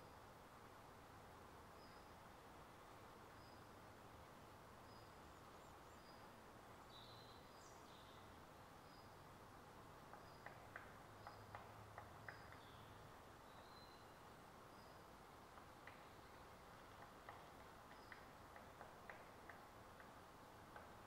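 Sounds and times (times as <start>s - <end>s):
small birds calling: 10.0s - 21.0s.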